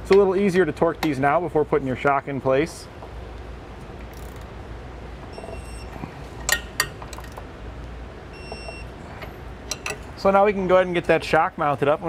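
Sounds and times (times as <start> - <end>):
steady low hum: 0.0 - 12.0
torque wrench clicks: 4.1 - 4.5.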